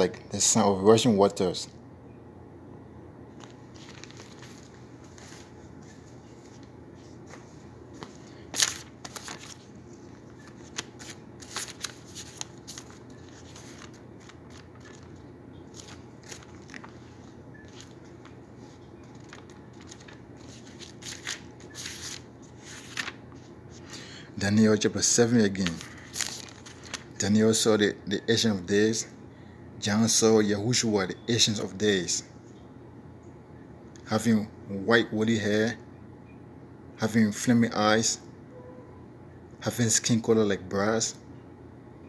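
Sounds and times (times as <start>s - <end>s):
low room hum: 0.0s - 42.0s
paper pages rustling: 3.3s - 24.0s, 25.0s - 27.2s.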